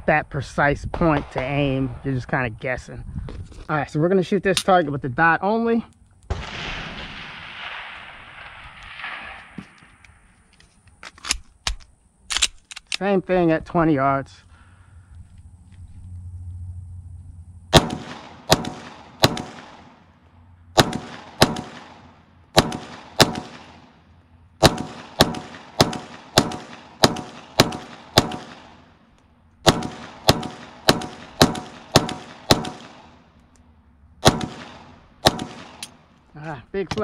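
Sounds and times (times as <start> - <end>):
pistol shots: 6.3 - 9.8, 17.7 - 20.0, 20.8 - 24.0, 24.6 - 28.9, 29.6 - 33.3, 34.2 - 36.1.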